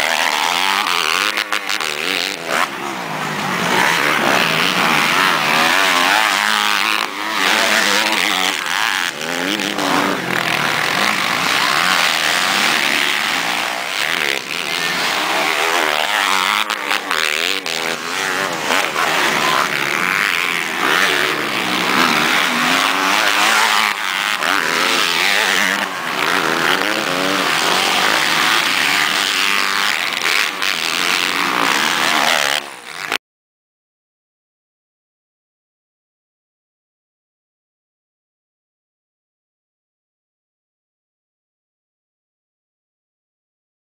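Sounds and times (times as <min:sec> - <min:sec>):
motocross bike engines revving: 0:00.0 - 0:33.2.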